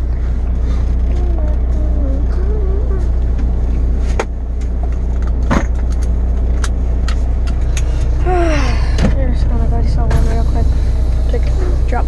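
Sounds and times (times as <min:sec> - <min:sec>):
diesel truck engine idling: 0:00.0 - 0:12.0.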